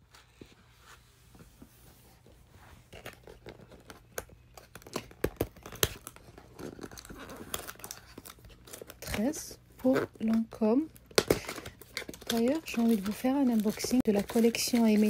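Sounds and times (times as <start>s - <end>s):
cardboard tearing open: 4.6s - 9.2s.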